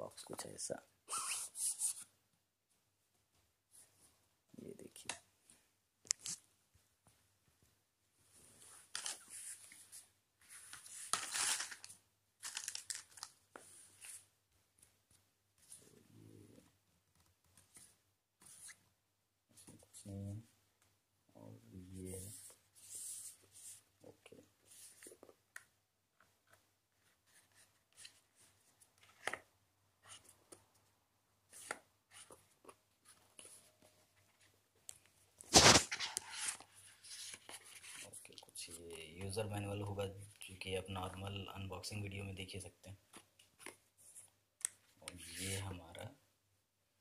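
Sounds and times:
cardboard packaging rustling: 10.6s - 13.4s, 35.5s - 38.0s.

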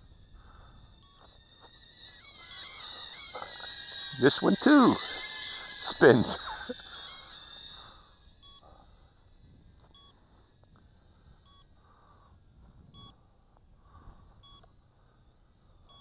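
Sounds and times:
short electronic beeps: 0.8s - 8.8s, 14.4s - 14.7s.

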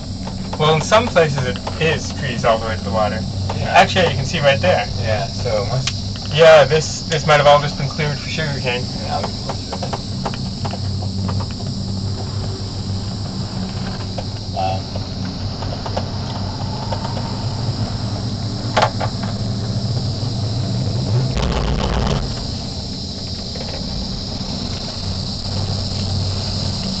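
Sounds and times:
cable car hum: 0.0s - 27.0s
insect drone: 0.0s - 27.0s
brief low rumble: 8.8s - 26.2s.

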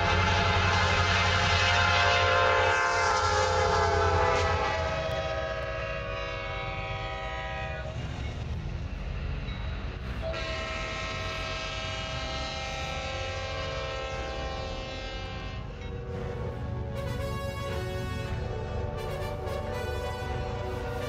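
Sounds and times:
locomotive air horn chord: 0.0s - 8.1s, 10.2s - 21.0s
train rumbling: 0.0s - 21.0s.

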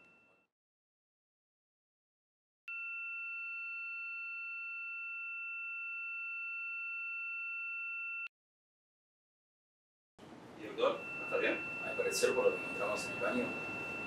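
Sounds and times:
high-pitched electronic tone: 11.0s - 14.0s.

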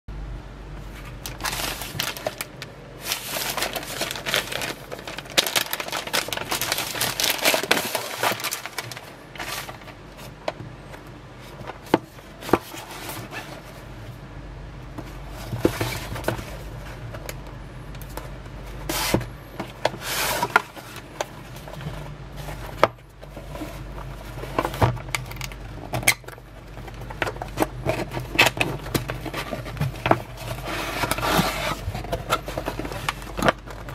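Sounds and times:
cardboard box being handled: 0.8s - 10.4s, 26.7s - 33.9s
plastic wrap crinkling: 0.8s - 10.6s, 18.8s - 33.9s.

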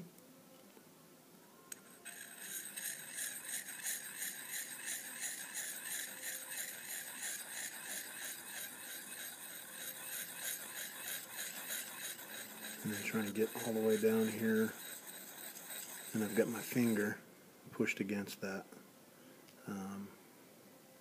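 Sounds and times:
sharpening rod scraping knife edge: 1.8s - 17.1s.

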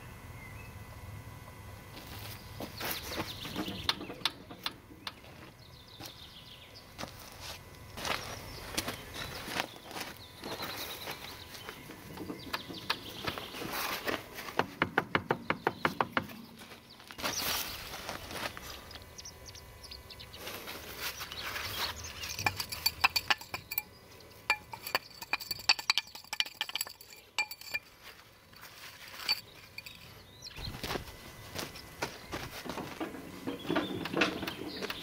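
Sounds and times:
metal tools clinking: 21.6s - 28.2s, 29.0s - 30.3s.

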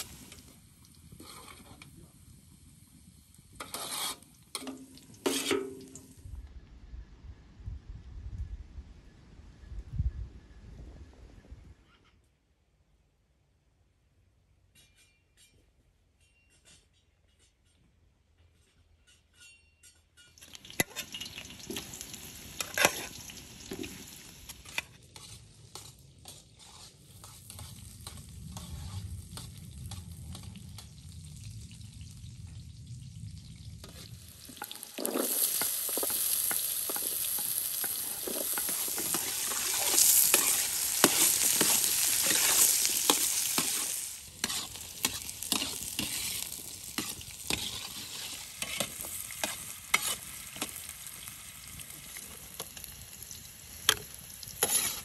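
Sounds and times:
food sizzling in a pan: 0.0s - 6.2s, 20.4s - 55.0s
scraping and clicking strokes: 3.6s - 5.8s, 23.7s - 30.9s, 34.6s - 50.8s, 53.8s - 55.0s.

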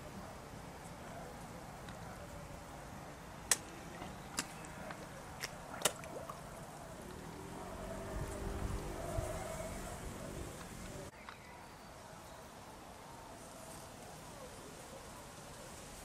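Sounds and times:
water plops: 3.5s - 6.6s.

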